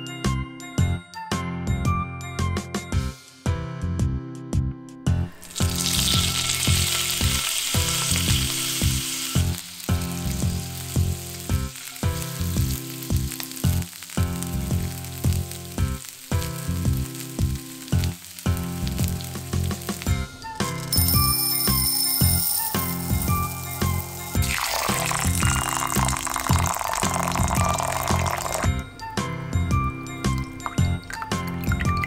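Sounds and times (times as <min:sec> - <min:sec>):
background music: 0:00.0 - 0:32.0
meat sizzling in hot oil: 0:05.3 - 0:28.8, 0:30.1 - 0:32.0.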